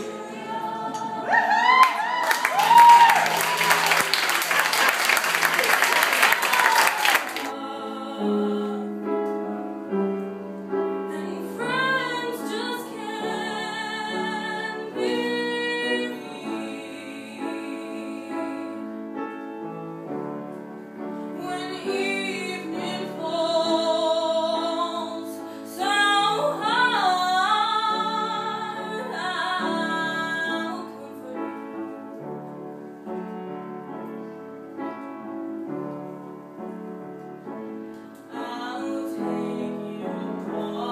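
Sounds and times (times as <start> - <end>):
woman singing with vibrato: 0.0 - 2.8, 6.5 - 9.0, 11.1 - 18.8, 21.4 - 31.6, 38.3 - 40.9
applause: 1.8 - 7.5.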